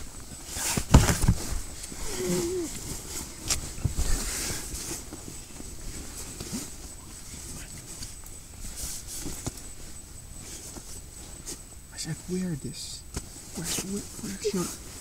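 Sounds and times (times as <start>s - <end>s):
fabric rustling: 0.0s - 11.7s.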